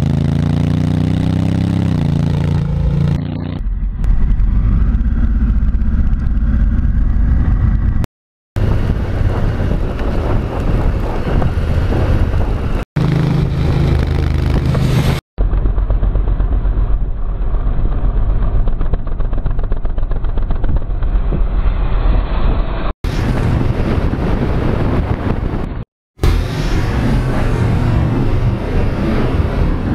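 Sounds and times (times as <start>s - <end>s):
motorcycle engine running: 0.0s - 8.0s, 8.6s - 21.4s
wind rush: 8.6s - 15.2s, 20.2s - 29.9s.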